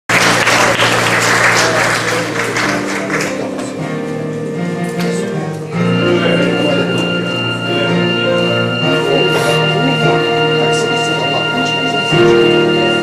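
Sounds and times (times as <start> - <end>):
audience applause: 0.1 - 3.8
stage musical music: 0.1 - 13.0.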